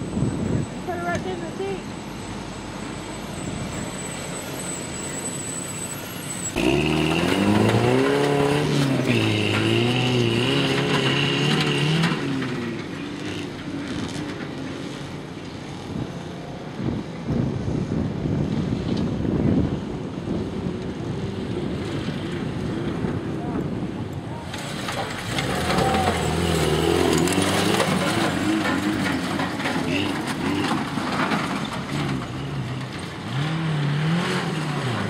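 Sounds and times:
truck engine revving hard: 4.0s - 14.2s, 24.5s - 35.0s.

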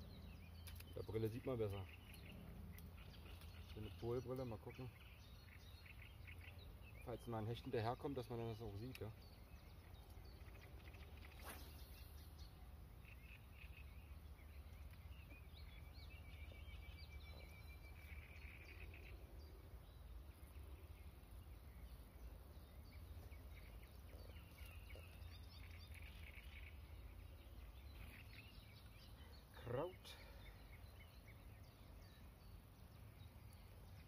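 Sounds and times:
birds chirping and calling: 0.0s - 34.0s
fishing rod swish: 11.2s - 12.2s.

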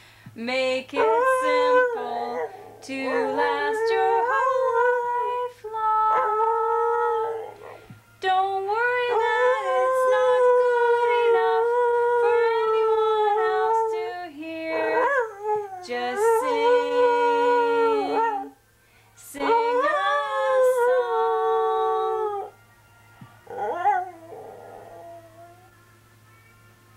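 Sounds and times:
person holding a steady note: 0.7s - 26.9s
dog howling: 0.9s - 7.9s, 9.1s - 18.6s, 23.4s - 25.7s.

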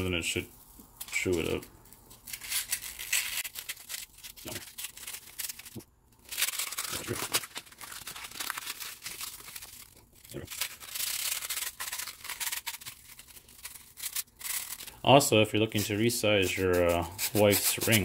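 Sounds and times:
metal rubbing on sandpaper: 15.6s - 18.0s.

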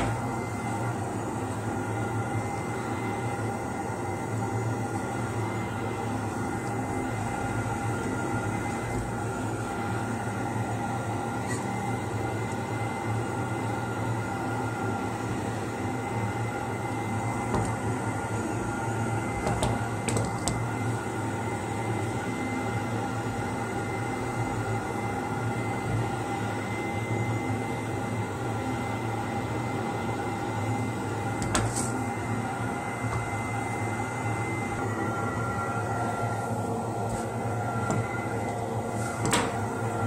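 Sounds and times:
machine humming: 0.0s - 40.0s.

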